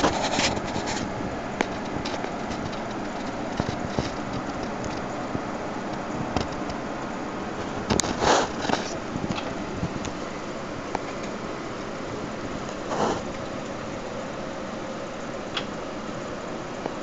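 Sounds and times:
scraping rustle: 0:00.0 - 0:05.4, 0:07.5 - 0:10.4, 0:12.5 - 0:13.5.

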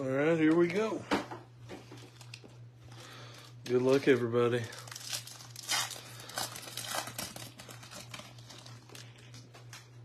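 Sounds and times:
wrapper tearing and crinkling: 0:03.8 - 0:10.0.

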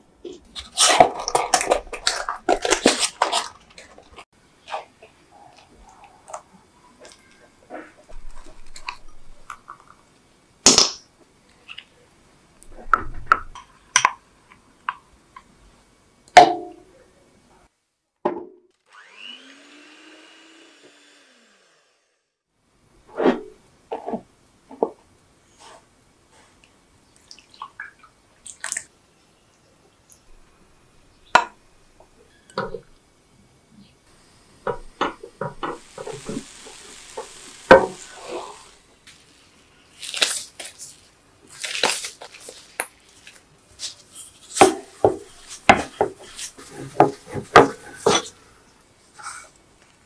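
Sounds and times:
faint steady hiss: 0:00.0 - 0:18.2, 0:22.5 - 0:50.0
soft sticky handling noises: 0:39.0 - 0:44.6.

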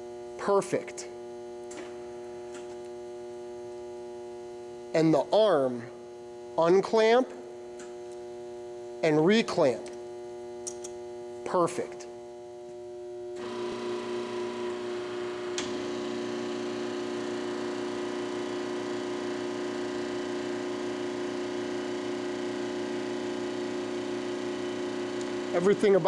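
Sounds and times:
click: 0:10.6 - 0:11.0
drill press humming: 0:13.3 - 0:26.0
motor running: 0:13.3 - 0:26.0.

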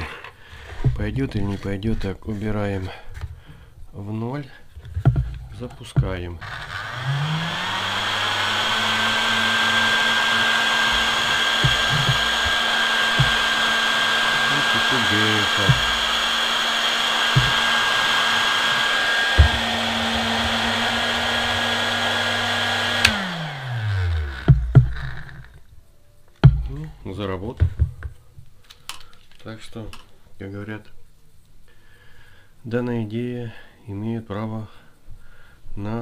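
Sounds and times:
heat gun fan motor running: 0:06.4 - 0:25.5
high whine: 0:06.4 - 0:25.6.

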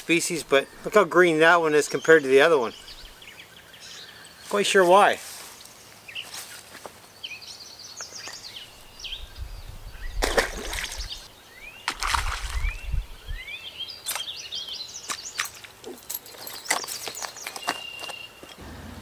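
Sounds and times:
songbirds singing: 0:00.0 - 0:18.7
water splashing: 0:10.2 - 0:11.3, 0:11.9 - 0:12.8.

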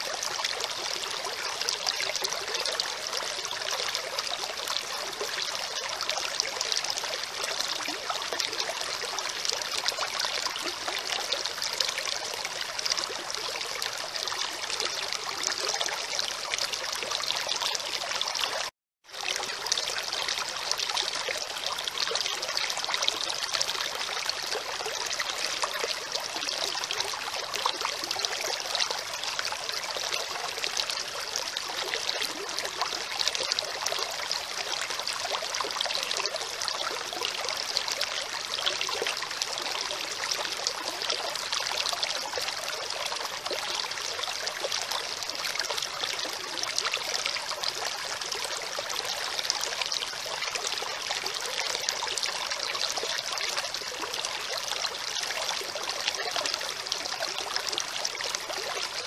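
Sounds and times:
stream trickling over pebbles: 0:00.0 - 0:59.0.

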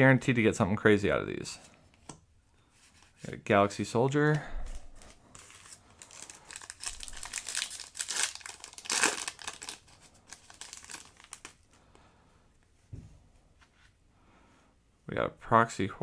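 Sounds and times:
foil wrapper crinkling and tearing: 0:04.7 - 0:11.7.

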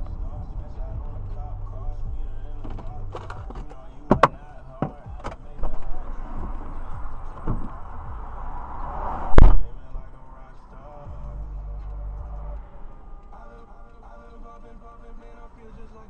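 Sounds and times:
road noise hiss: 0:00.0 - 0:16.0
car door latch clicks: 0:02.6 - 0:06.0, 0:07.3 - 0:07.9
car door thumping shut: 0:02.6 - 0:06.0, 0:07.0 - 0:08.2.

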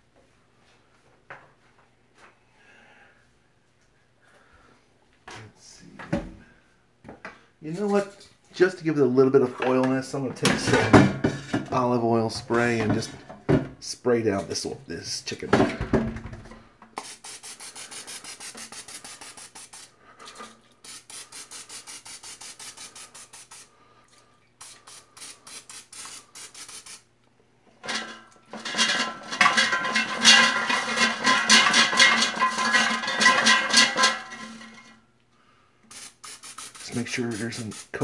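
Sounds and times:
cooking spray hissing: 0:17.0 - 0:20.0, 0:20.8 - 0:23.8, 0:24.6 - 0:27.1, 0:35.9 - 0:38.0.

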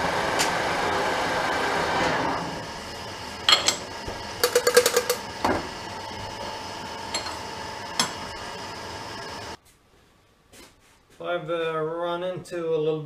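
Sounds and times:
steady low hum: 0:00.8 - 0:09.6.

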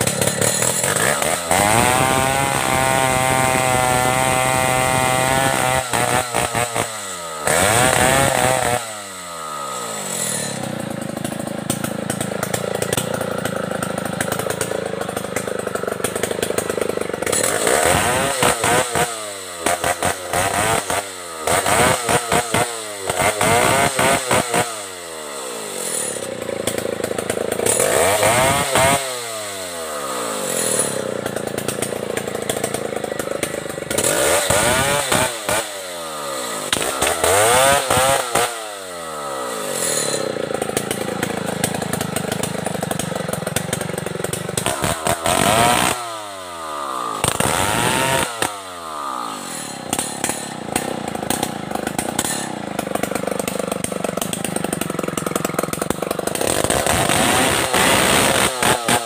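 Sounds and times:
chainsaw cutting log: 0:00.0 - 0:59.0
chainsaw revving: 0:00.0 - 0:59.0.

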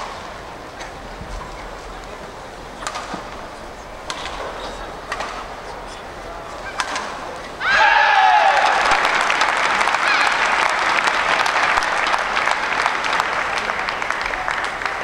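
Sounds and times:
arena crowd noise: 0:00.0 - 0:15.0
badminton racket hitting shuttlecock: 0:04.1 - 0:04.4
crowd applause and cheering: 0:07.6 - 0:15.0.

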